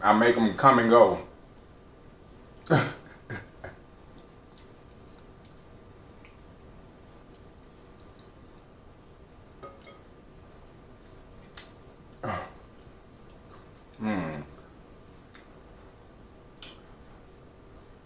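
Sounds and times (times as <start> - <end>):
chewing and lip smacks: 4.1 - 8.8, 10.9 - 18.0.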